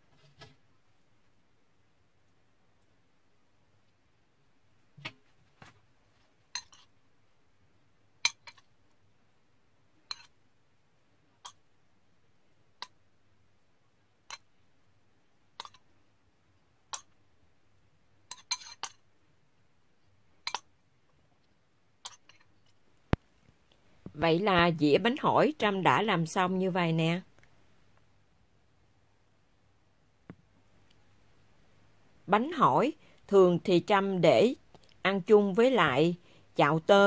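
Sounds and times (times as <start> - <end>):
metal spoon clinking on china: 6.6 - 6.9, 18.3 - 19.0.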